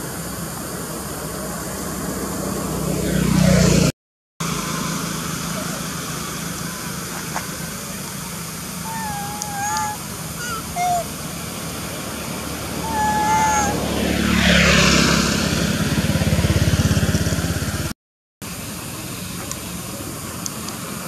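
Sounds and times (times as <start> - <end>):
motor vehicle passing: 0.6 - 8.0, 8.6 - 17.9
infant monkey squeaky coos: 8.8 - 11.1, 12.8 - 13.8.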